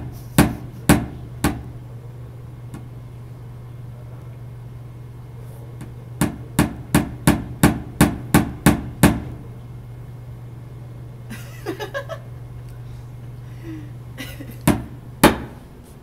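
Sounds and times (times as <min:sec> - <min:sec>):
hammer tapping a nail: 0:00.4 - 0:01.7, 0:06.2 - 0:09.3, 0:14.7 - 0:15.6.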